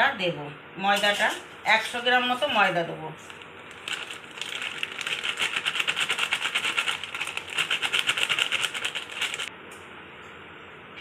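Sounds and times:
plastic packet crinkling: 3.2 - 9.5.

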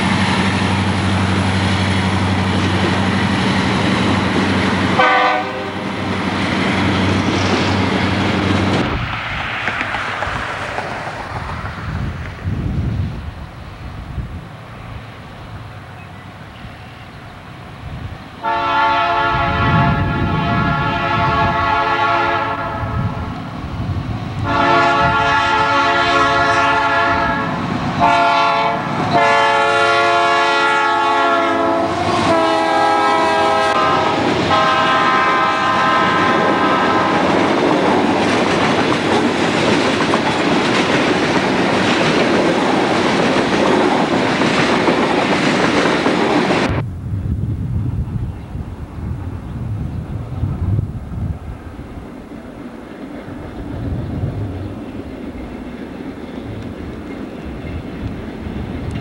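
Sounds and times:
train wheels rumbling on rail: 0.0 - 59.0
locomotive air horn: 5.0 - 6.0, 18.4 - 23.2, 24.4 - 37.3.

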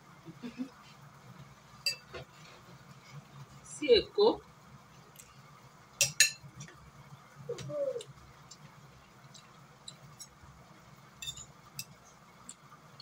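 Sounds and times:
spoons clicking against plates: 6.0 - 6.4, 9.3 - 10.4, 11.2 - 12.7
cooing call: 7.5 - 8.1.

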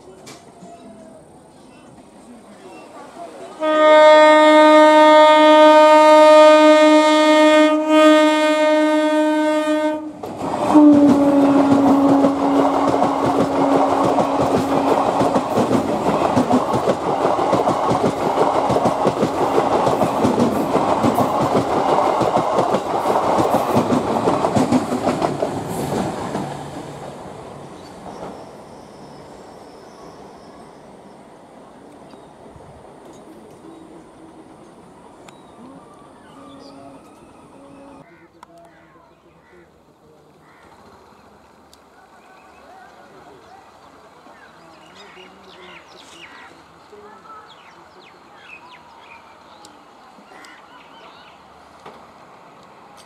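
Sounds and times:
train horn blast: 3.6 - 15.1
train wheels clattering on rails: 10.2 - 27.1.

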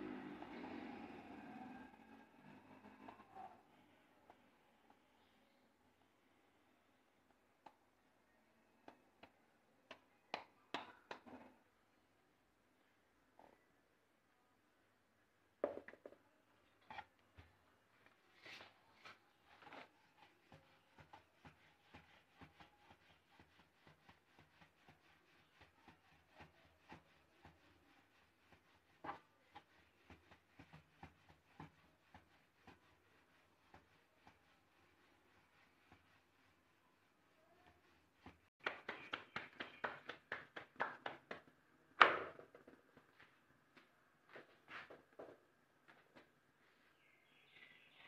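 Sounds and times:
rolling pin rolling dough: 18.4 - 40.4.

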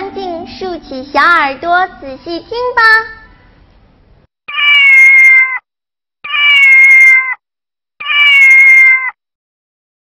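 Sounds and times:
cat meowing: 4.5 - 5.6, 6.2 - 7.4, 8.0 - 9.2.

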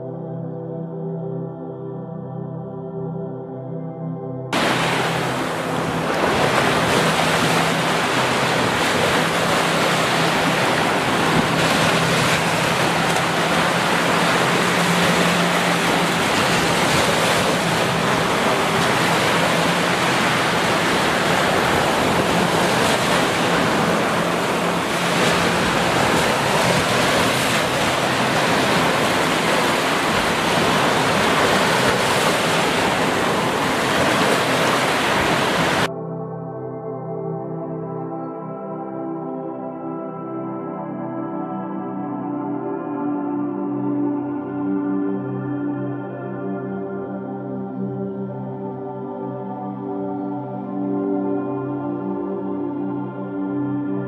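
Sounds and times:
ocean surf washing onto beach: 4.6 - 35.9.

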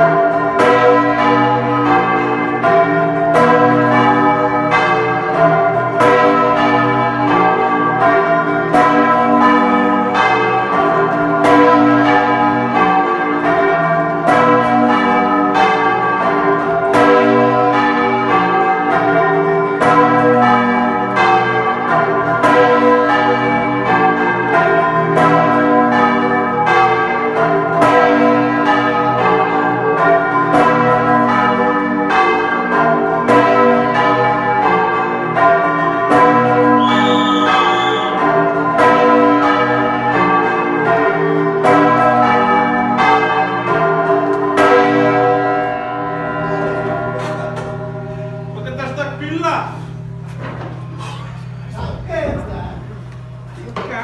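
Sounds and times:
large church bells ringing: 0.0 - 54.0.

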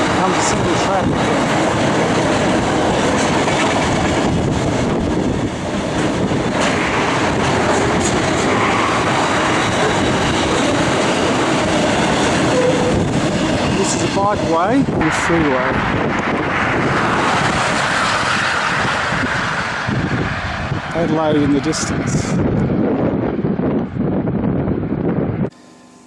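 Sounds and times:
freight train wagons rolling: 0.0 - 15.7.

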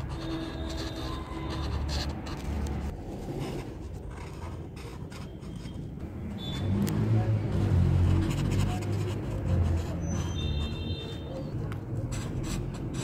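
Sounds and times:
marker scraping on paper: 0.0 - 13.0.

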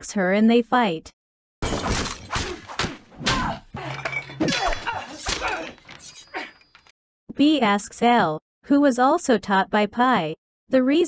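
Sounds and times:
fight blows and thuds: 1.6 - 6.2
woman grunting and crying out: 2.4 - 6.6
things breaking: 3.7 - 6.9.

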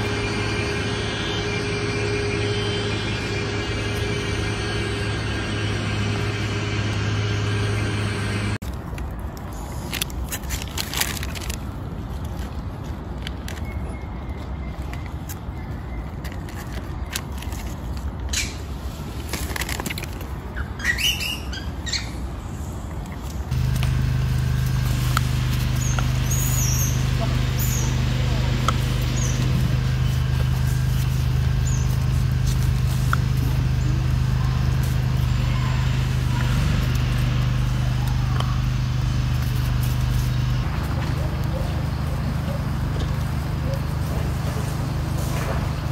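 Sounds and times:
high wavering squeak: 0.0 - 8.6
low mechanical hum: 0.0 - 45.9.

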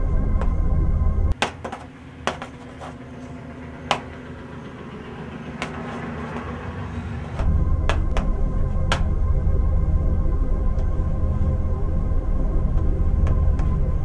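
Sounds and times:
organ music: 0.0 - 1.4, 7.4 - 14.0.

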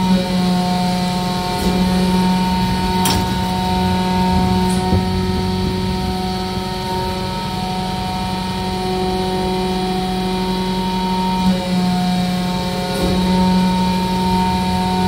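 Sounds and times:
hydraulic pump humming: 0.0 - 15.0.

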